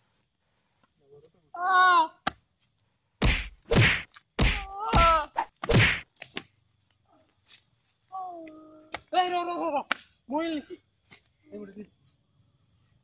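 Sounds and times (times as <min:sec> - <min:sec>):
loud whacking hits: 0:03.2 - 0:06.1.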